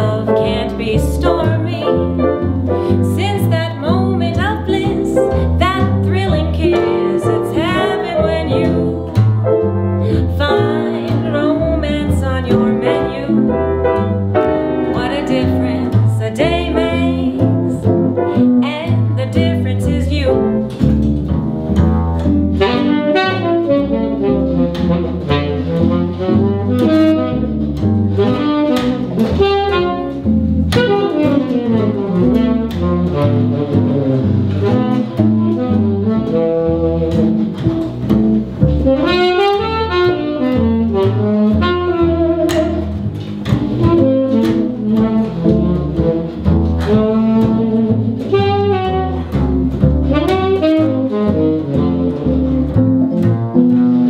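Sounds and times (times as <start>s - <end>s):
upright bass: 0.0s - 54.0s
saxophone melody: 21.7s - 54.0s.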